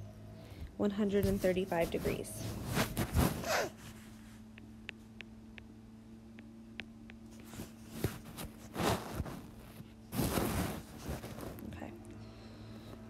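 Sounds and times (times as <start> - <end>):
faint steady hum: 0.0 - 13.0
soft noises: 0.6 - 5.0, 7.3 - 13.0.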